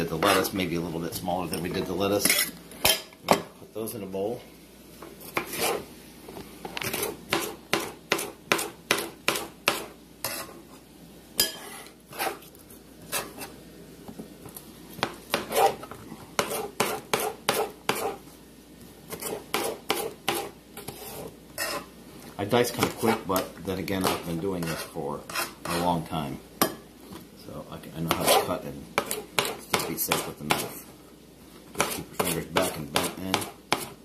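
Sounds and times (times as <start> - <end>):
knife chopping on a hard plate: 6.8 - 10.5, 15.0 - 15.8, 16.4 - 18.2, 19.1 - 21.8, 28.1 - 28.4, 29.0 - 30.7, 31.7 - 34.0.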